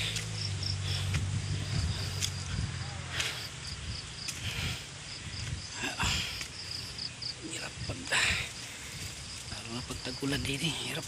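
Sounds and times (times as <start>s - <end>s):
low hum: 0.0s - 5.8s
insects chirping: 0.0s - 11.0s.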